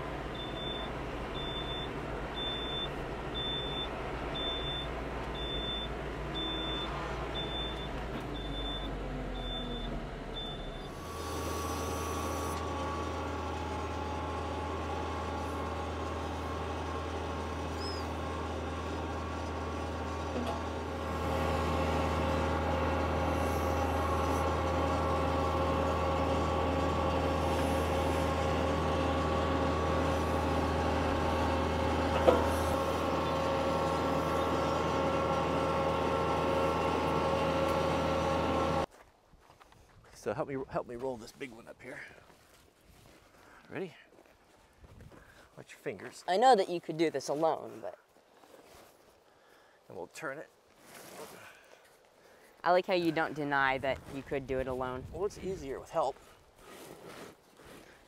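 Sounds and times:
diesel tractor engine running: 0.0 - 38.9
high electronic beeps: 0.4 - 10.9.

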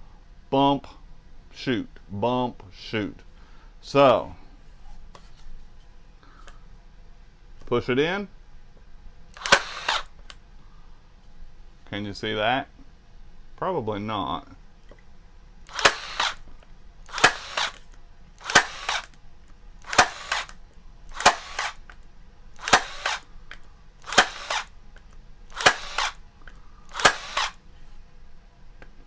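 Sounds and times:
electric staple gun firing: 9.4 - 10.1, 15.7 - 16.4, 17.1 - 19.2, 19.8 - 22.0, 22.6 - 24.7, 25.5 - 26.2, 26.9 - 27.6.

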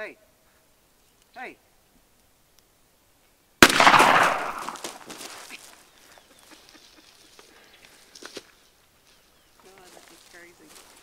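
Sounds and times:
shotgun blast: 3.6 - 5.2
bird flapping on ground: 4.1 - 11.0.

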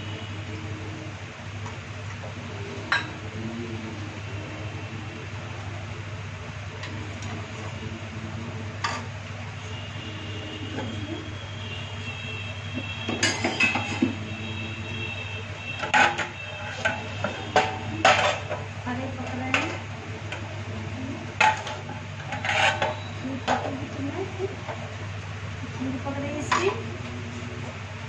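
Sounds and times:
steady low hum: 0.0 - 28.0
metal lids clanking on pots: 13.1 - 14.2, 15.8 - 18.7, 21.4 - 23.8, 26.4 - 26.8.

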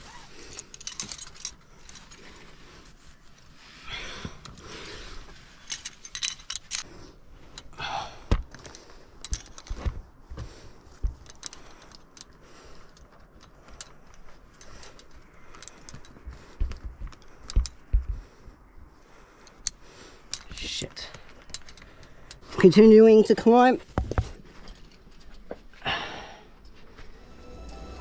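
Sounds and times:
metal climbing gear clinking: 0.0 - 27.3.

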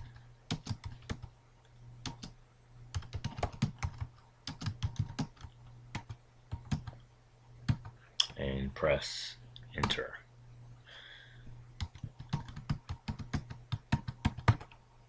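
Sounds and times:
steady low hum: 0.0 - 15.0
keyboard keystrokes clicking: 11.8 - 14.8.

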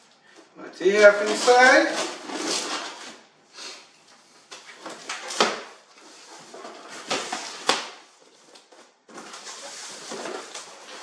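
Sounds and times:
cardboard scraping and rustling: 1.1 - 3.2, 8.4 - 11.0.

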